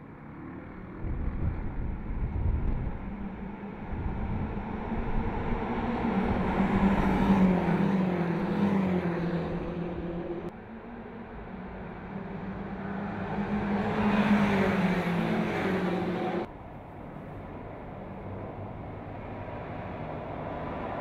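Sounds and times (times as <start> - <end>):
cars accelerating past: 2.7 - 16.5.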